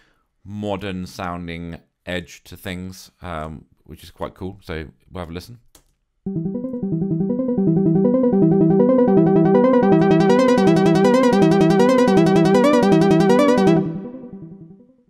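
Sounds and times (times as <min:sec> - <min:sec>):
synthesizer arpeggio: 0:06.3 - 0:15.0.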